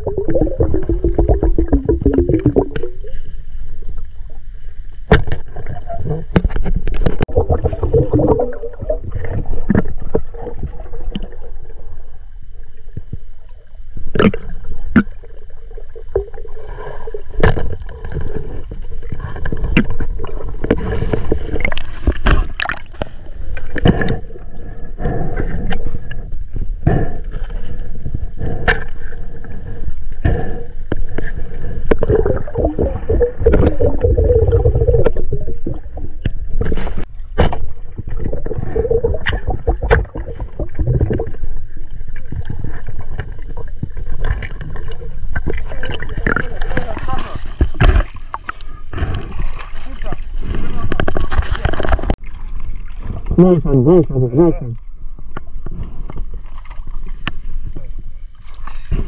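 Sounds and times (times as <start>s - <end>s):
steady low rumble: 0.0s - 59.0s
water sloshing and gurgling: 0.0s - 59.0s
sharp knocks and splashes: 19.4s - 24.0s, 36.2s - 41.5s, 42.1s - 48.6s.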